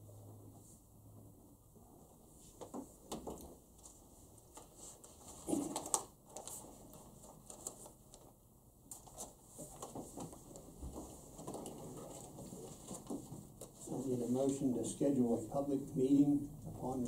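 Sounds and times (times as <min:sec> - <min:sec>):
rustling: 0:02.4 - 0:14.7.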